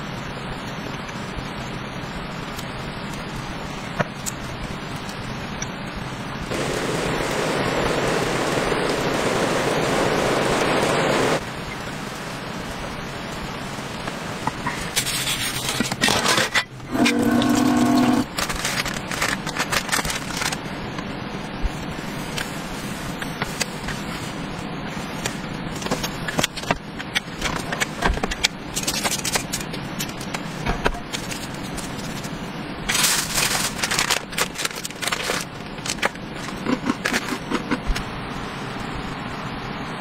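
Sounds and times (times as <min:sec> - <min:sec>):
steady background hiss: 0:00.0 - 0:40.0
packaging crinkling: 0:17.0 - 0:20.6, 0:31.2 - 0:37.8
plastic packet rustling: 0:17.0 - 0:20.6, 0:31.2 - 0:37.8.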